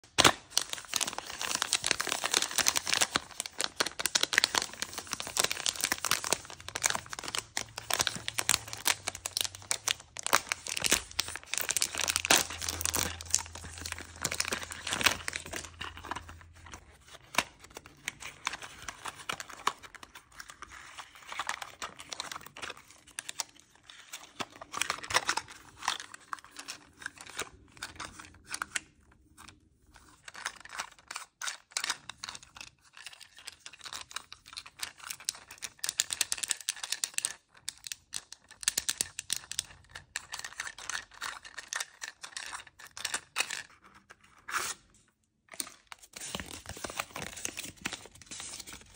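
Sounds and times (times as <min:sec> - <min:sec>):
plastic wrapper crackling and tearing: 0:00.1 - 0:44.9, 0:45.5 - 0:48.9
rustles and clicks of unpacking: 0:00.2 - 0:27.5.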